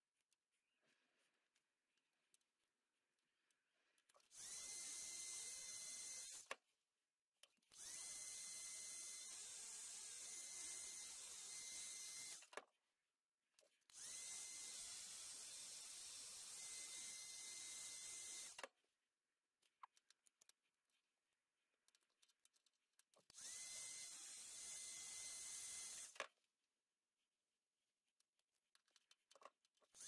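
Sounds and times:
heat gun running: 0:04.4 - 0:06.4, 0:07.8 - 0:12.4.

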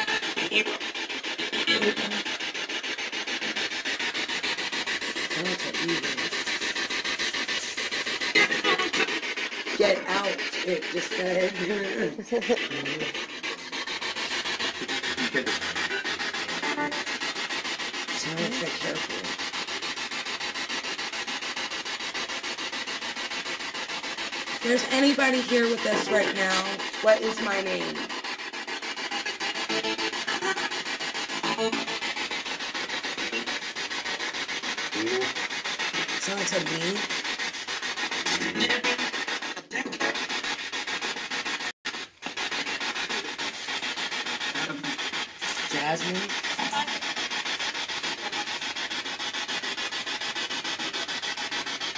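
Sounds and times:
pulsing radio static: 0:00.0 - 0:02.2, 0:07.5 - 0:13.2, 0:38.3 - 0:39.0.

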